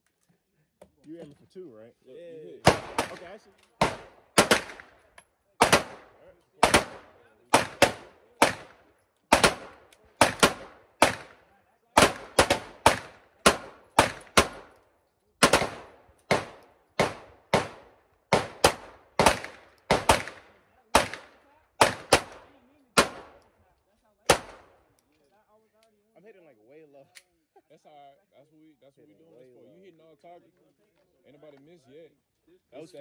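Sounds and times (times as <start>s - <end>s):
pistol shots with echo: 2.6s - 14.8s, 15.4s - 23.5s, 24.3s - 24.9s.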